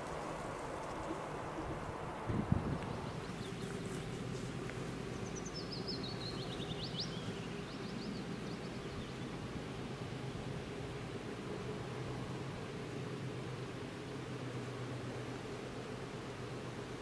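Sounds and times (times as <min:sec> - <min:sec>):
songbird chirping: 0:00.0 - 0:09.5
low outdoor rumble: 0:00.0 - 0:17.0.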